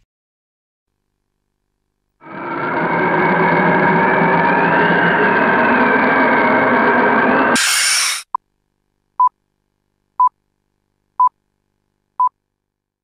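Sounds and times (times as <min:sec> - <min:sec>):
steady whirring noise: 0:02.2 - 0:08.2
burst of hiss: 0:02.2 - 0:08.3.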